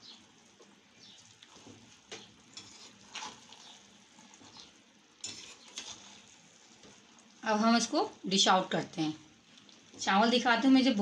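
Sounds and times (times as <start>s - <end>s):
metal spoon scraping cooking pot: 2.5s - 3.8s, 5.2s - 6.3s.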